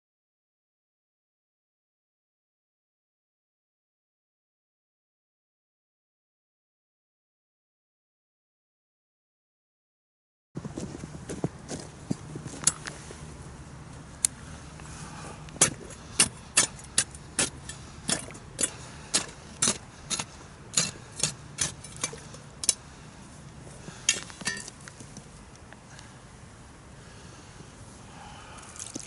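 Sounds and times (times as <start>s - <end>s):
ice chisel chopping ice: 15.6s - 22.8s.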